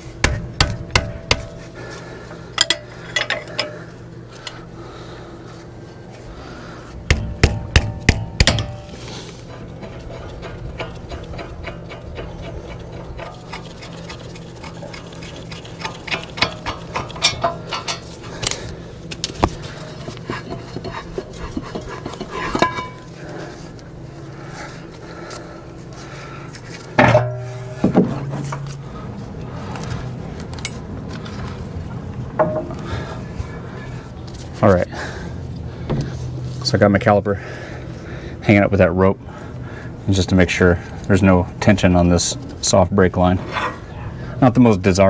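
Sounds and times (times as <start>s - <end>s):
low hum: 0.0s - 40.1s
metal clinks of wrenches and bolts: 2.6s - 3.8s, 16.1s - 18.6s, 19.2s - 19.6s.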